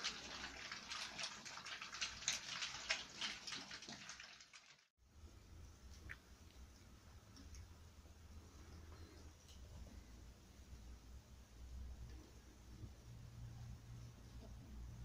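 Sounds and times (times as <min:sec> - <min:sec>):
puppies lapping and slurping food: 0:00.0 - 0:04.8
faint low hum: 0:05.0 - 0:15.0.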